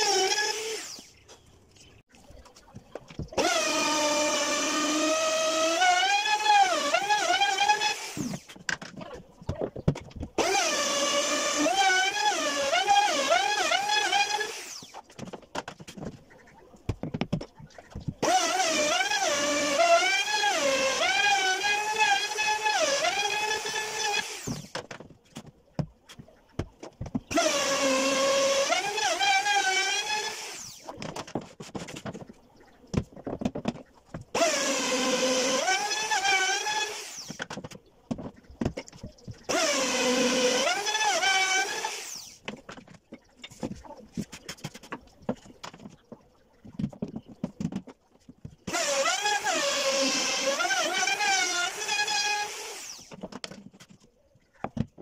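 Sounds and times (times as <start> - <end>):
router motor whine cutting wood: 3.4 - 8.4, 10.4 - 14.9, 18.2 - 24.7, 27.3 - 30.8, 34.4 - 37.4, 39.5 - 42.4, 48.7 - 53.1.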